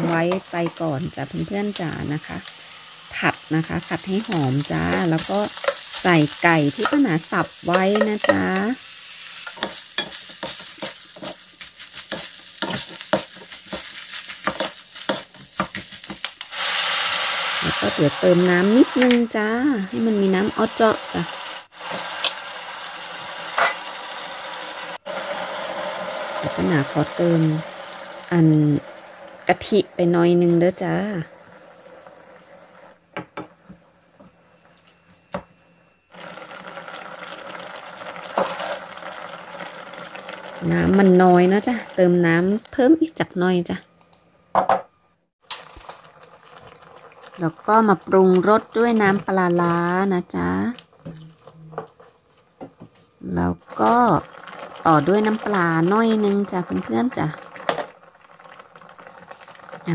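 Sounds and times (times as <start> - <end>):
chicken sizzling in a wok: 0.0 - 33.0, 36.1 - 42.6, 53.3 - 59.9
wooden spoon scraping a pan: 9.4 - 16.3, 38.4 - 38.8
curry simmering and bubbling: 36.1 - 40.6, 45.5 - 49.2, 53.6 - 59.9
wooden spatula scraping a pan: 38.4 - 38.8.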